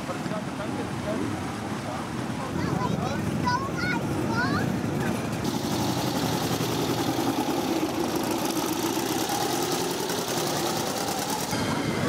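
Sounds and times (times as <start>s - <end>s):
motorcycle trike engine passing: 4.5s - 12.0s.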